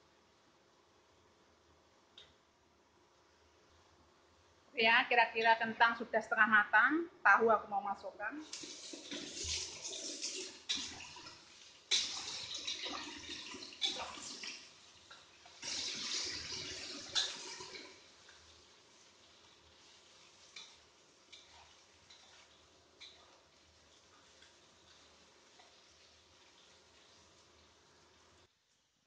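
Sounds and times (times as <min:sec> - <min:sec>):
food sizzling in hot oil: 0:08.4 - 0:29.0.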